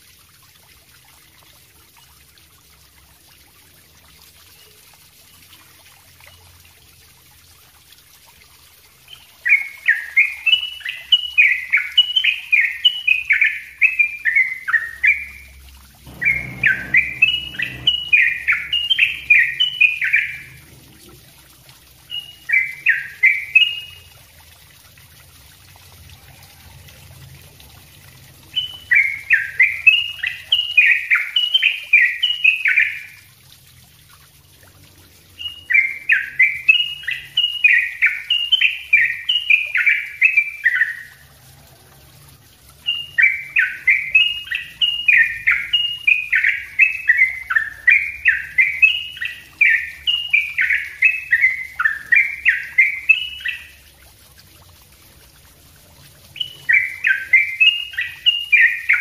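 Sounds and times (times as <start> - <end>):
bulbul singing rapid falling notes: 9.1 - 24.3, 28.4 - 33.1, 35.4 - 41.2, 42.8 - 53.9, 56.2 - 59.0
faint low rumble: 15.9 - 21.8.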